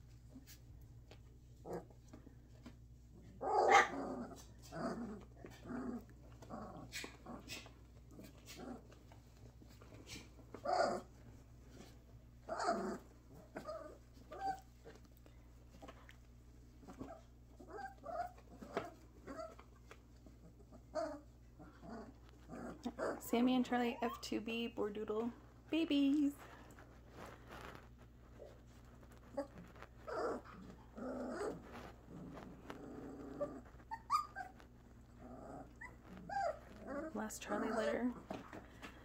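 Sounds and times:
puppies growling: 1.5s - 23.3s, 26.4s - 39.0s
puppy calls: 3.4s - 5.8s, 12.4s - 15.0s, 29.3s - 38.5s.

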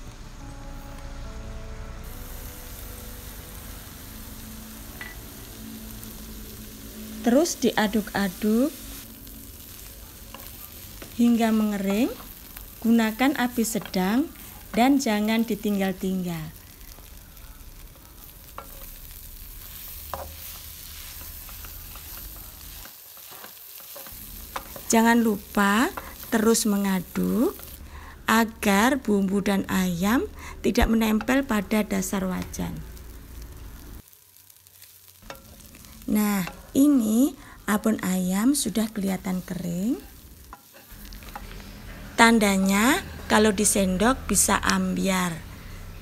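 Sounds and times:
soft background music: 0.0s - 34.0s, 41.0s - 46.0s
chicken sizzling in a wok: 2.0s - 46.0s.

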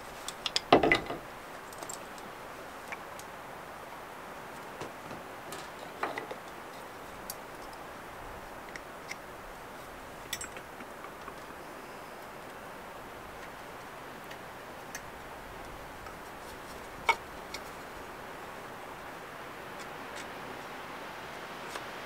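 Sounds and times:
steady soft hiss: 0.0s - 22.0s
metal and wood clicks and taps: 0.3s - 2.3s, 10.3s - 11.5s, 17.0s - 17.7s.

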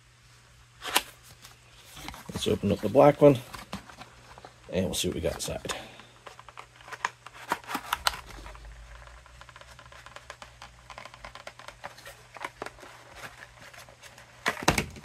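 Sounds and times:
cardboard scraping and clicking: 6.4s - 15.0s.

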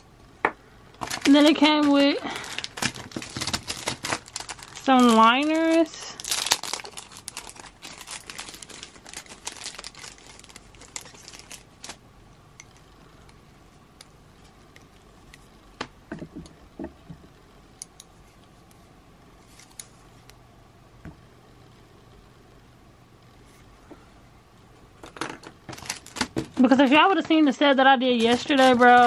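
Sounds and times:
plastic packaging crinkling: 0.9s - 12.0s, 25.7s - 29.0s.

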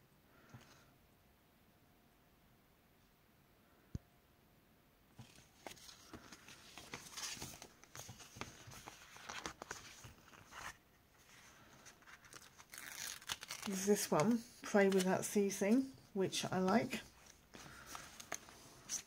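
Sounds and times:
paper pages rustling: 5.2s - 15.8s, 16.4s - 19.0s.

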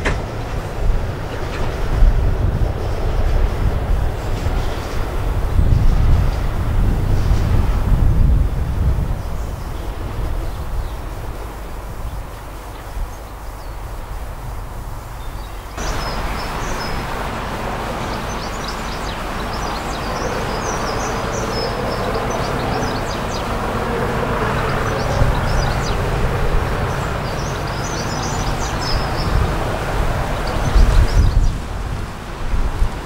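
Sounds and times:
diesel locomotive engine approaching: 0.0s - 33.0s
wind rumble on microphone: 0.0s - 33.0s
small birds chirping and singing: 15.1s - 31.7s.

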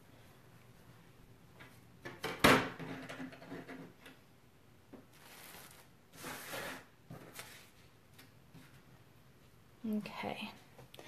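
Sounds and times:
rustling slides: 5.1s - 7.9s.

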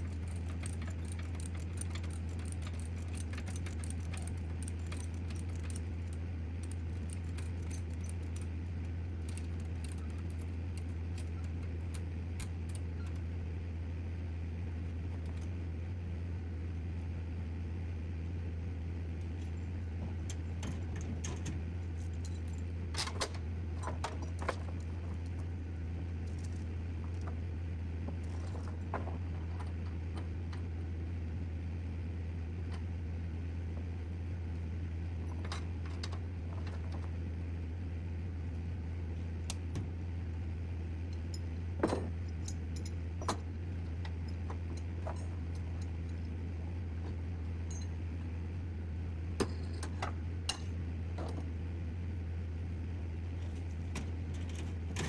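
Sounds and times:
loose metal clinking and rattling: 0.0s - 12.9s
truck engine droning: 0.0s - 55.0s.

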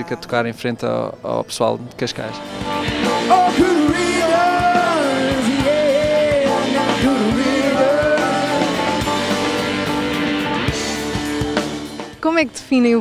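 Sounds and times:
gliding lead melody: 2.2s - 12.1s
folk-rock band playing live: 2.4s - 12.2s.

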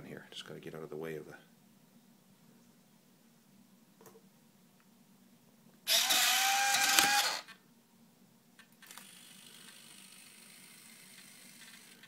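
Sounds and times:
faint servo buzz: 5.8s - 7.5s, 8.9s - 12.0s
landing gear mechanical whir: 5.9s - 7.4s.

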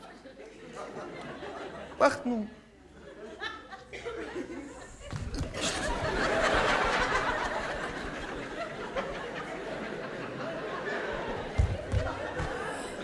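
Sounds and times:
audience laughing: 0.0s - 13.0s.

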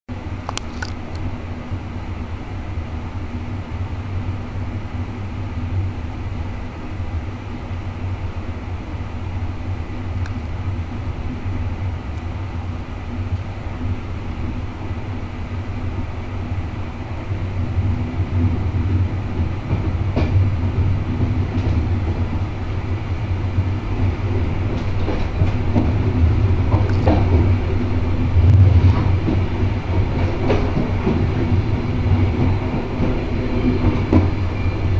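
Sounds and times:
train rumbling on track: 0.1s - 34.9s
wheels clicking over rail joints: 23.9s - 34.4s.

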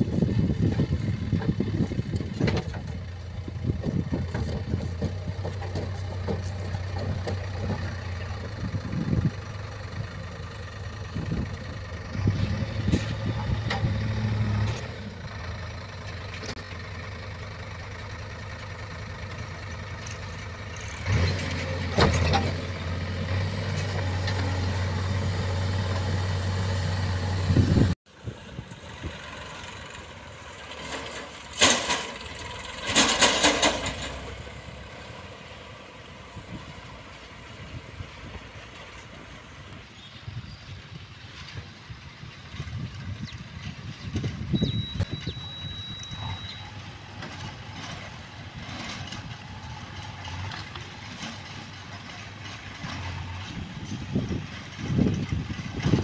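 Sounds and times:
backhoe diesel engine running: 0.0s - 56.0s
tractor engine running: 0.0s - 56.0s
metal clanks and knocks: 0.6s - 8.8s, 20.0s - 24.8s, 30.7s - 34.5s.

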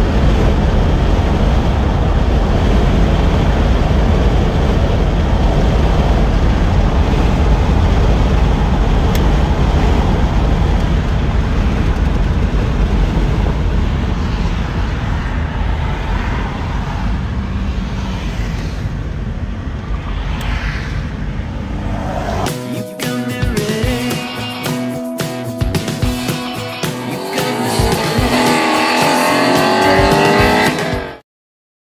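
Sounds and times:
tyre and wind noise: 0.0s - 22.5s
car engine rumble: 0.0s - 31.2s.

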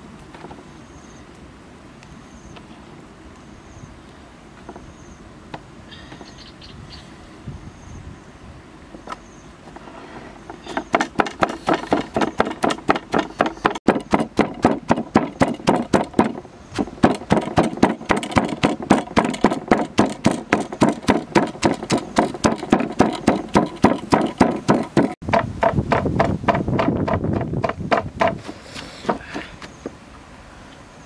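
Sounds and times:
pestle pounding in stone mortar: 10.7s - 29.4s.

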